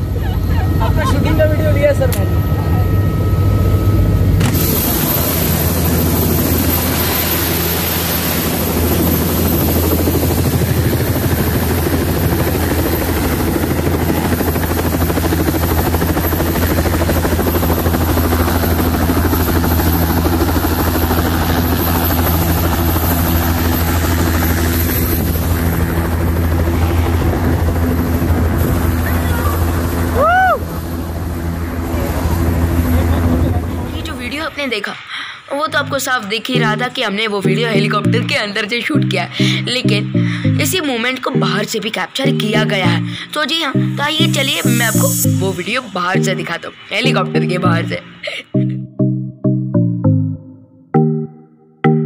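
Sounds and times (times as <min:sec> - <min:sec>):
helicopter rotor and turbine drone: 0:00.0 - 0:48.7.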